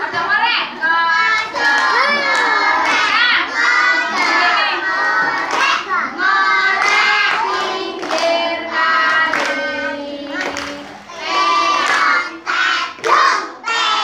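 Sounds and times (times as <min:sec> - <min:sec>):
children singing together: 0:01.0 - 0:14.0
hand clapping: 0:06.8 - 0:08.4, 0:09.1 - 0:09.6, 0:10.4 - 0:10.8.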